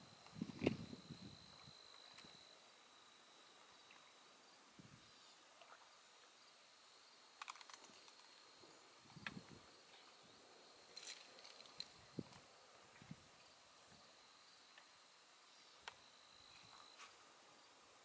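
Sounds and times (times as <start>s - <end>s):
thin steady high tone: 0.0s - 5.4s.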